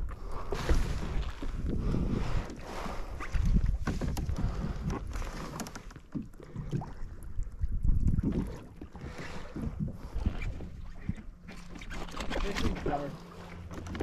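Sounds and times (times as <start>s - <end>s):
wind buffeting microphone: 0.0s - 5.1s
water against hull: 0.0s - 14.0s.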